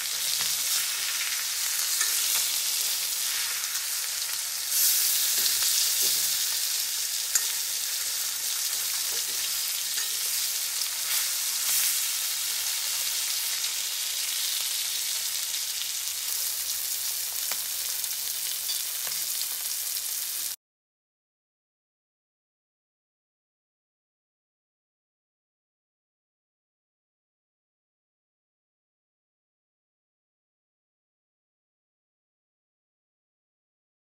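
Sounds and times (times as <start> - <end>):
fish sizzling in oil: 0.0 - 20.6
metal spoon clicking on pan: 1.8 - 2.9, 7.2 - 10.5.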